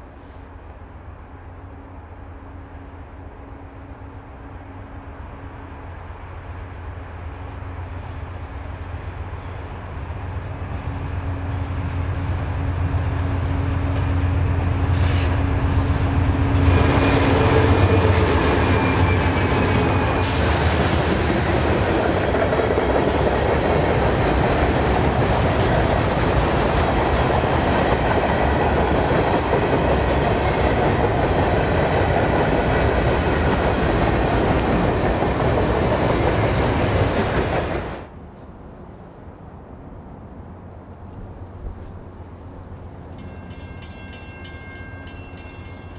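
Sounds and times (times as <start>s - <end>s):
diesel locomotive engine rumble: 0.0s - 45.9s
train wheels rumbling on rail: 0.0s - 45.9s.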